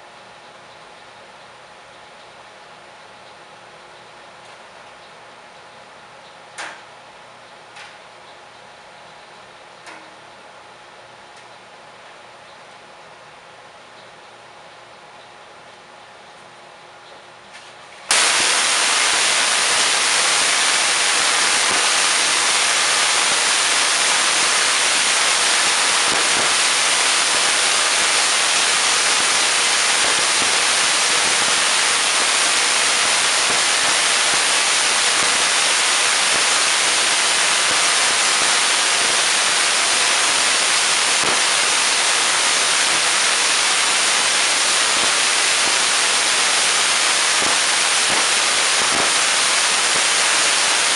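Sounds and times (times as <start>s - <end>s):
tesla coil crackling buzz: 18.1s - 50.9s.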